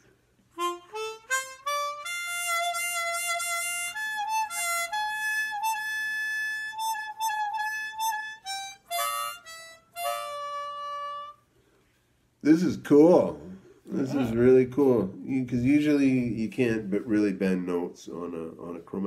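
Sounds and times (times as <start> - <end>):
chromatic harmonica playing: 0.0 - 11.8.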